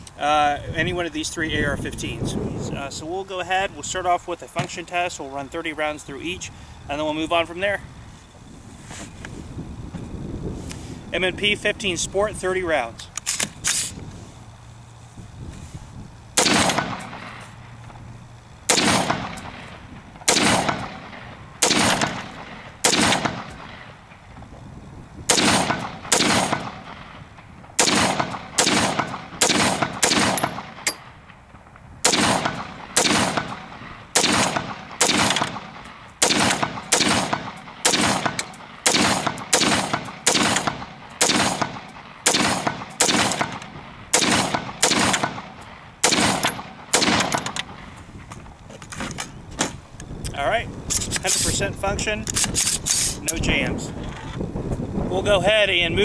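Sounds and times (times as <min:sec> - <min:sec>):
rifle shots: 0:16.4 - 0:17.5, 0:18.6 - 0:24.0, 0:25.3 - 0:31.4, 0:32.0 - 0:47.9.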